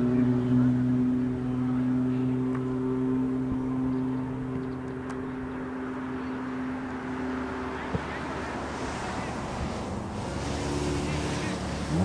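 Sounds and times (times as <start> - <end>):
low engine hum: 0.0 - 12.0
outdoor noise: 0.0 - 12.0.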